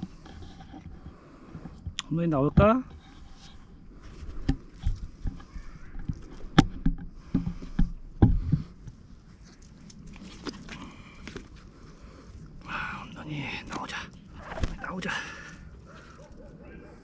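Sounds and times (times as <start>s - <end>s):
knocks and thumps: 4.4s - 8.8s.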